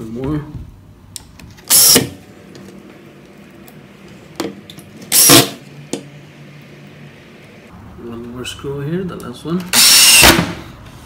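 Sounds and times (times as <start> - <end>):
cordless drill driving screw: 1.7 - 2.1, 5.1 - 5.6, 9.7 - 10.4.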